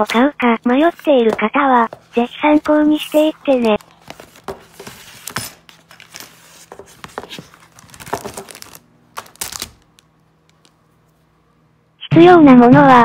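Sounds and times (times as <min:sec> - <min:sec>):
cardboard box rustling: 0:03.5 - 0:09.6.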